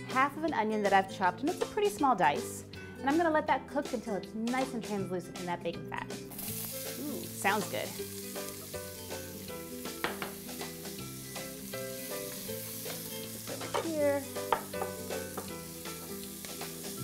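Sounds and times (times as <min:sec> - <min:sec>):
onion sizzling in fat: 0:06.3 - 0:17.0
spoon stirring and knocking pot: 0:10.0 - 0:10.4, 0:12.9 - 0:15.6.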